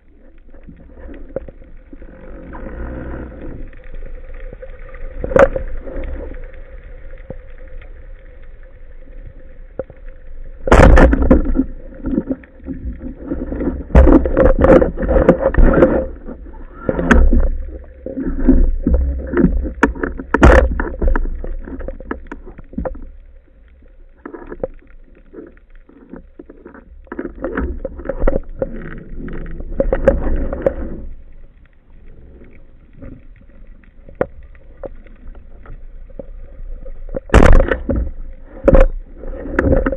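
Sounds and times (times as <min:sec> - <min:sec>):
rushing gurgling water: 0:00.0 - 0:31.4, 0:32.4 - 0:39.9.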